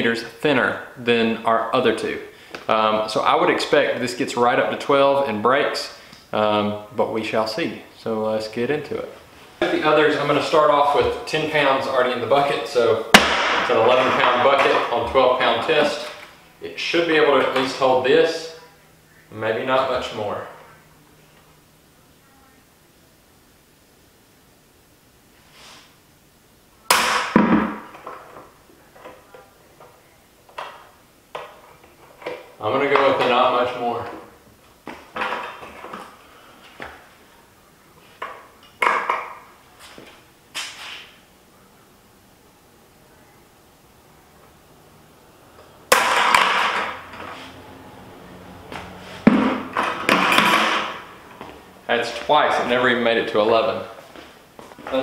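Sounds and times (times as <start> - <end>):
bucket crashing onto concrete: 13.2 - 15.2, 26.9 - 28.3, 45.9 - 47.0, 49.2 - 51.1.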